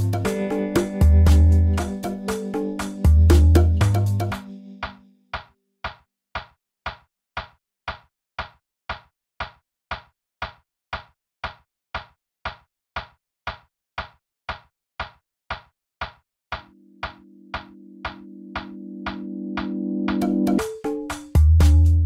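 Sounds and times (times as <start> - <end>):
steady percussive ticks: 4.8 - 21.4.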